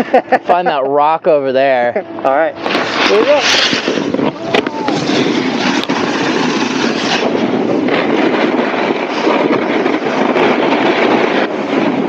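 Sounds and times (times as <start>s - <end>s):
snowboards scraping on icy snow: 2.7s - 12.0s.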